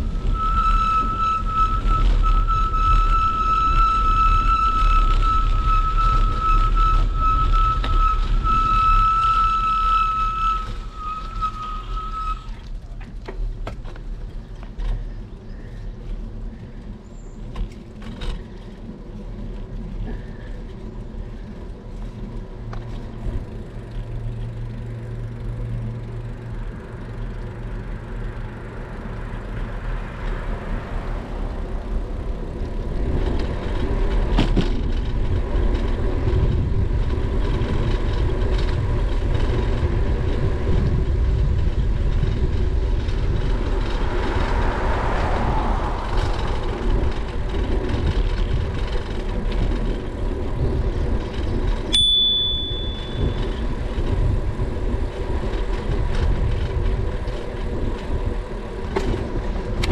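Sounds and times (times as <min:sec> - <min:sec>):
steady high squeal: 0:00.0 - 0:12.7, 0:43.0 - 0:49.1, 0:51.4 - 0:53.8
bicycle tyre and road noise: 0:00.0 - 0:59.9
wind buffeting microphone: 0:30.7 - 0:51.9, 0:52.9 - 0:59.9.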